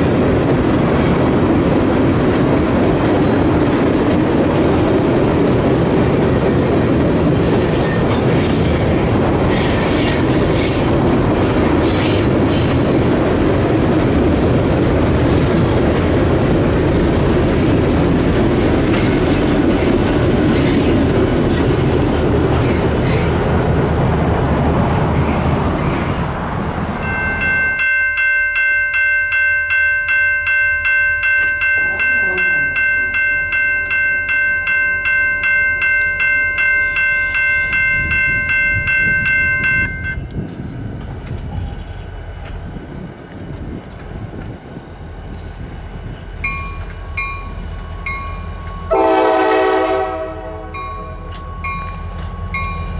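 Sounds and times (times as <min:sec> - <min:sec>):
train wheels rumbling on rail: 0:00.0 - 0:52.9
wheel squeals: 0:07.4 - 0:11.1, 0:11.8 - 0:13.2
grade crossing bell ringing: 0:27.0 - 0:40.3, 0:46.4 - 0:52.9.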